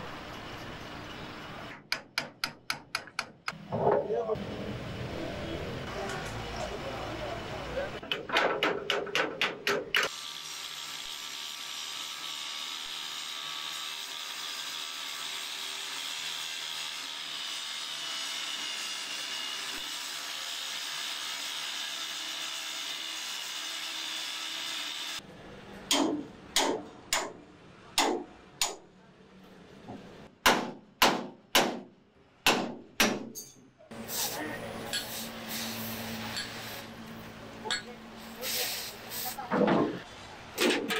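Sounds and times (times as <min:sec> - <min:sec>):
metal strikes on steel sheet: 0:25.9 - 0:27.4.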